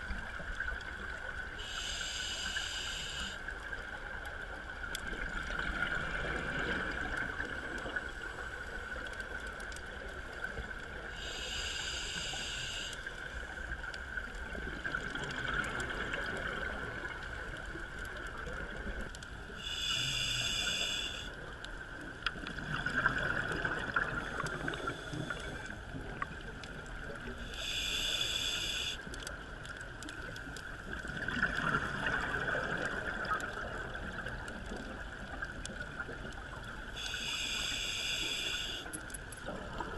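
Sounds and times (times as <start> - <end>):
diver inhaling through regulator: 1.6 - 3.4, 11.2 - 13.1, 19.6 - 21.4, 27.4 - 29.0, 37.0 - 39.0
exhaled bubbles rushing: 22.6 - 24.8.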